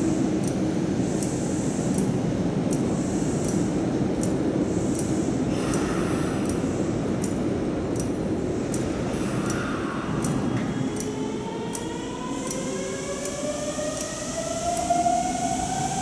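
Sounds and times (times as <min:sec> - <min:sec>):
electric train equipment humming: 0:00.0 - 0:16.0
faint high ticks: 0:00.4 - 0:00.6, 0:01.2 - 0:05.1, 0:05.7 - 0:12.6.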